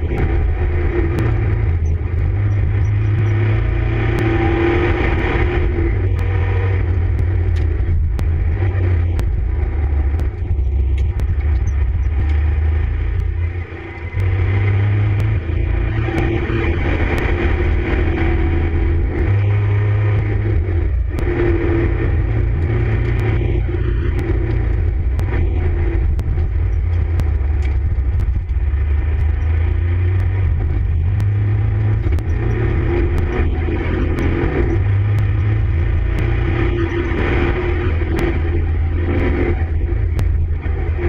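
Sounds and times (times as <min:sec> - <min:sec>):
diesel engine running hard: 0:00.0 - 0:41.0.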